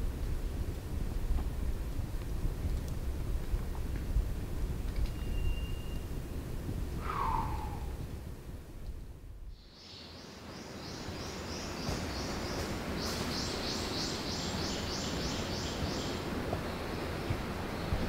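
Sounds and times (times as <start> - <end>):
forest ambience: 0.0 - 18.0
high-pitched animal call: 7.0 - 8.0.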